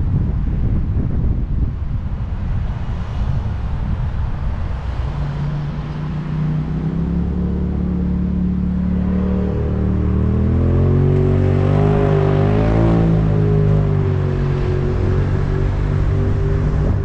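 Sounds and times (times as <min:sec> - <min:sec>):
car wind and road noise: 0:00.0 - 0:17.0.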